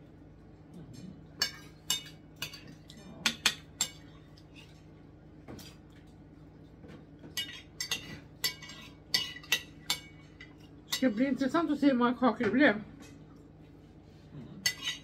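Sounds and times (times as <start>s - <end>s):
cutlery clinking on a plate: 7.3s - 11.0s, 14.6s - 15.0s.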